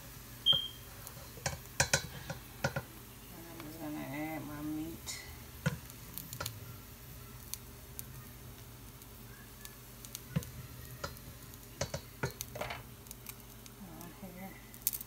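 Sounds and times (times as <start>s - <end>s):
serving utensil clicking and tapping: 1.4s - 2.9s, 10.3s - 12.8s.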